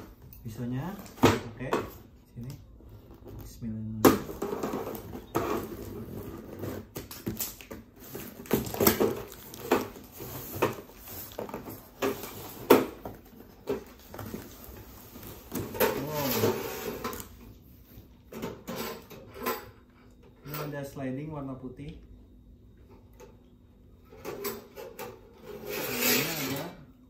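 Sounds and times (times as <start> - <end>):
plastic wrap rustling: 4.3 - 17.4.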